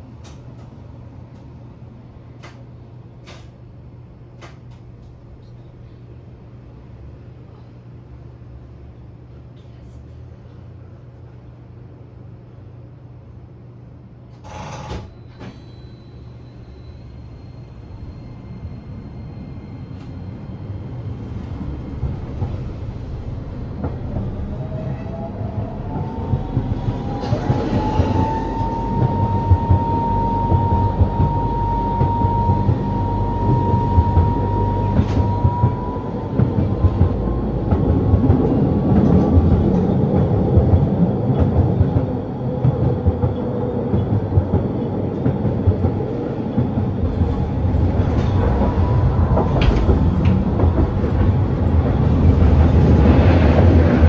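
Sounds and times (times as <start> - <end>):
tram motor whine: 14.3 - 54.0
steel wheels rumbling on rails: 17.3 - 54.0.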